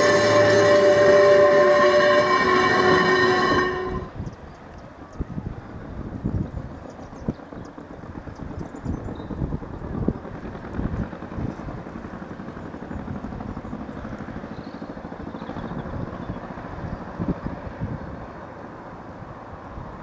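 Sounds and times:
distant train rumble: 0.0 - 20.0
wind buffeting microphone: 2.7 - 14.4, 15.6 - 18.5.

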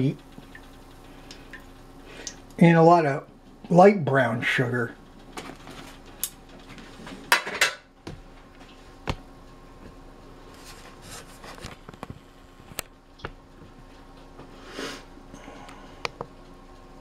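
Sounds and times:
pans and utensils clattering: 7.3 - 7.9.

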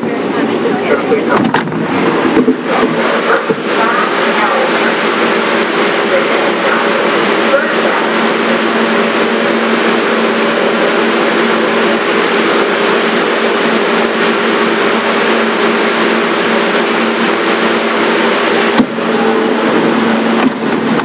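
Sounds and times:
subway car rail noise: 0.0 - 21.0
traction motor hum: 0.0 - 21.0.

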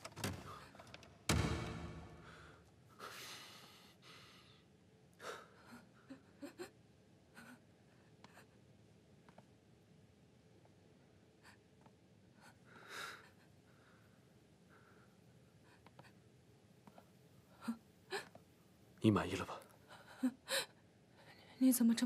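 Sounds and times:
soft breaths: 2.1 - 6.7, 11.1 - 18.8.

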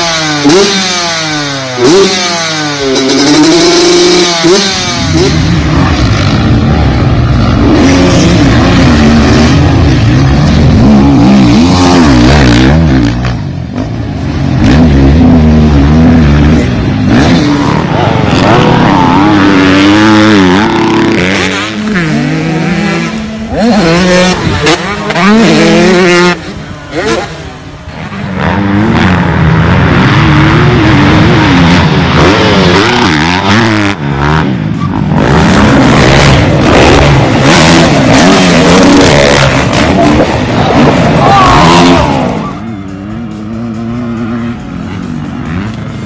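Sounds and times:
dirt bike engines revving: 0.0 - 46.0.

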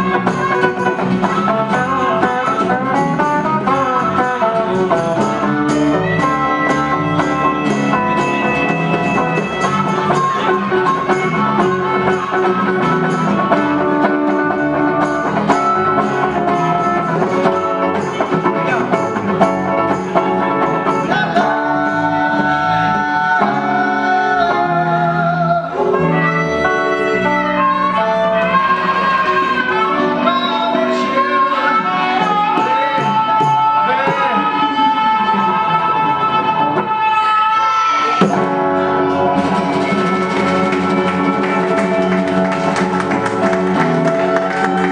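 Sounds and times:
bongos: 0.0 - 24.3, 38.0 - 44.9
electric and acoustic guitars: 0.0 - 44.9
harmonica: 0.0 - 44.9.

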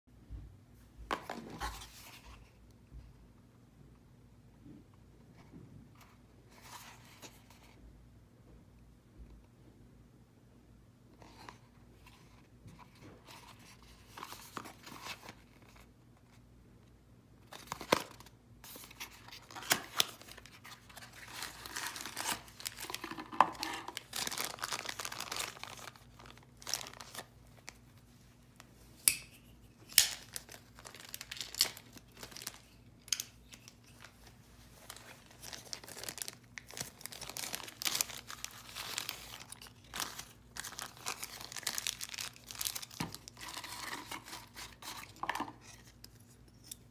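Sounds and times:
plastic bag crinkling: 19.0 - 27.8, 30.0 - 33.1, 34.0 - 45.1.

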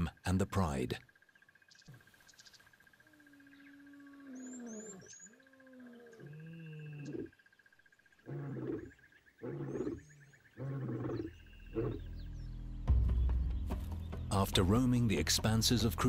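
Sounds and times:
high insect drone: 0.0 - 12.0
bird chirps: 1.1 - 14.4
lion roaring: 8.2 - 12.1.

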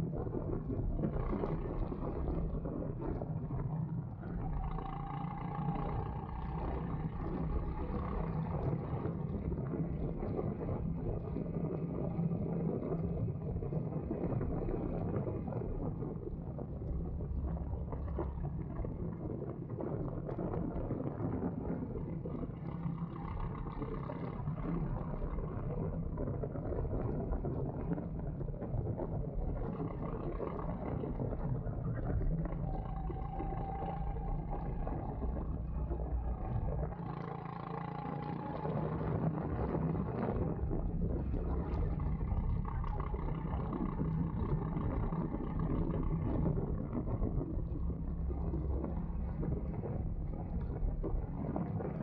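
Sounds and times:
go-kart engine running: 3.8 - 10.2, 32.3 - 46.6.

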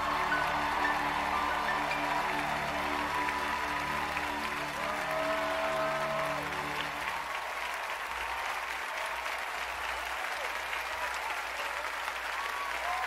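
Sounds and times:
people shouting: 0.0 - 6.5
dance music: 0.0 - 7.3
audience applauding: 0.0 - 13.0.

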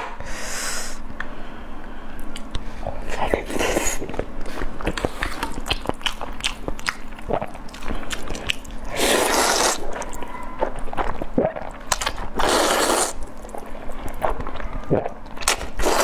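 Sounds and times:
wet chewing: 3.3 - 16.0
noodle slurping: 8.1 - 10.0, 12.3 - 13.2, 15.7 - 16.0.

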